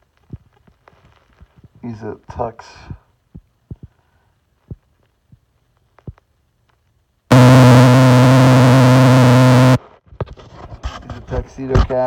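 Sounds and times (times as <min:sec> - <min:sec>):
loud electronic buzzing tone: 0:07.3 - 0:09.8.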